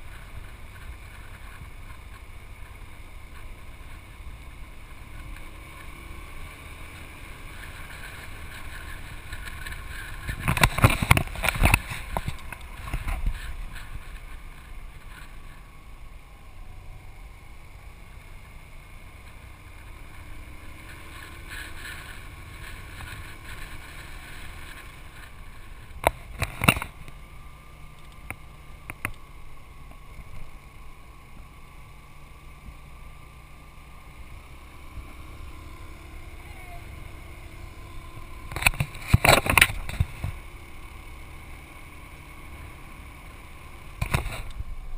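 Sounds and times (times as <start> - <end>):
road and wind noise: 0.0 - 44.9
scooter engine running: 0.0 - 44.9.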